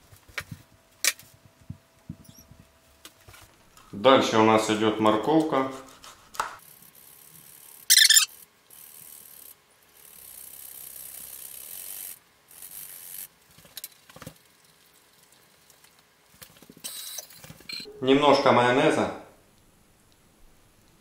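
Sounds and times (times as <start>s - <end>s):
high-pitched squeak: 7.9s - 8.3s.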